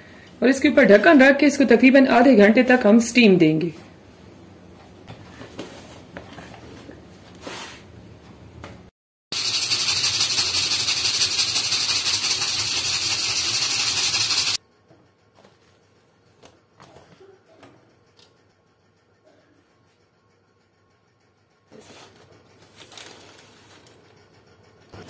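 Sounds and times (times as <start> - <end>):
pressure cooker steam hissing: 9.4 - 14.6.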